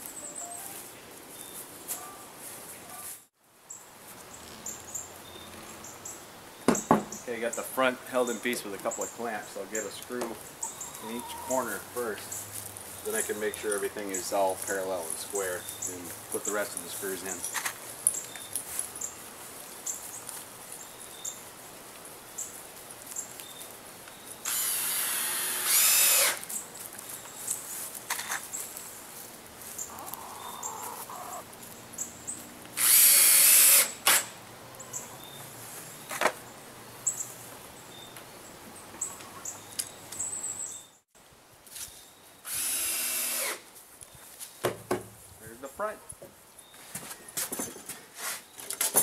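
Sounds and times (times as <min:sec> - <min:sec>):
cordless drill motor whine: 0:24.5 - 0:26.4, 0:32.8 - 0:33.9, 0:42.5 - 0:43.6.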